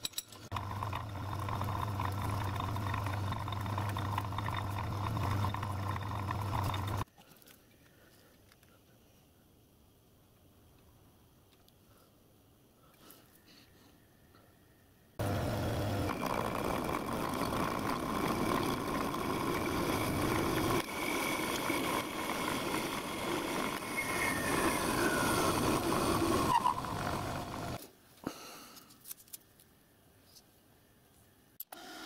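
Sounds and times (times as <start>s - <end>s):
metal lathe whining: 0.6s - 7.0s, 15.2s - 27.8s.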